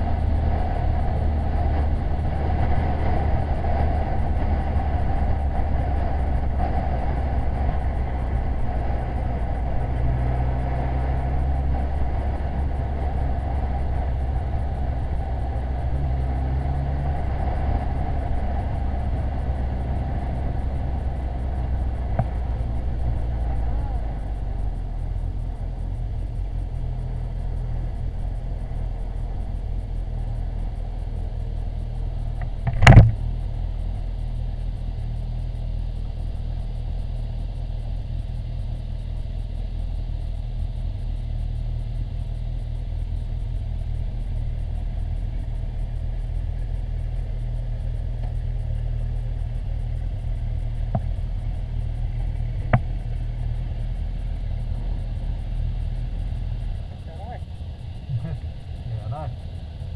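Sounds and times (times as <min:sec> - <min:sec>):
motorcycle engine running: 0:00.0 - 0:59.9
small click: 0:32.4 - 0:33.2.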